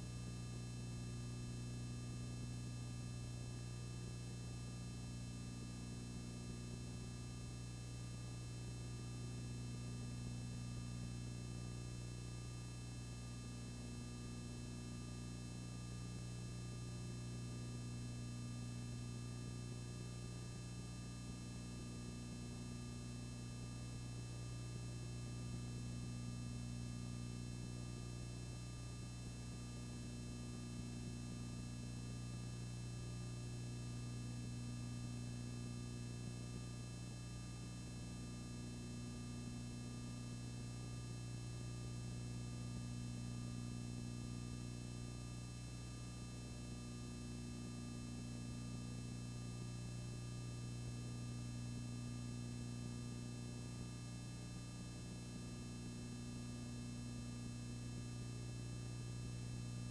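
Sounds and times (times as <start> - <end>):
low electrical hum: 0.0 - 59.9.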